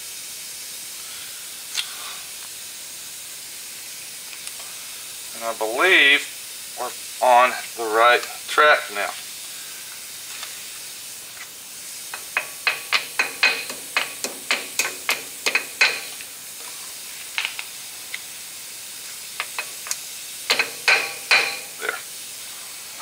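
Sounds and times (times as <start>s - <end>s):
hammer tapping on metal: 12.2s - 16.2s, 20.5s - 21.8s.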